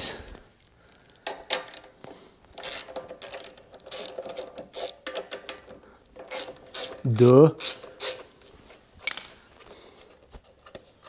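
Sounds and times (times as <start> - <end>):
socket ratchet clicking: 1.2 - 2.0, 2.6 - 8.2.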